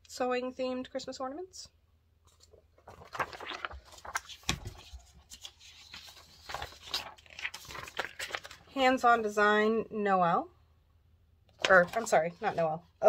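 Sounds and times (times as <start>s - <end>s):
paper rustling: 2.2s - 8.7s, 11.6s - 12.7s.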